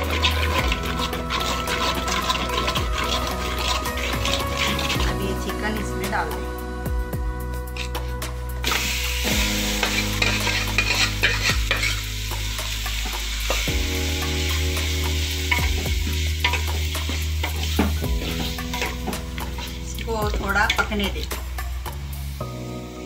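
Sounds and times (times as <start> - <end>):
metal spoon scraping pot: 0.0 - 5.8, 9.8 - 12.1, 15.5 - 21.2
chicken sizzling in hot oil: 0.0 - 6.3, 7.8 - 23.0.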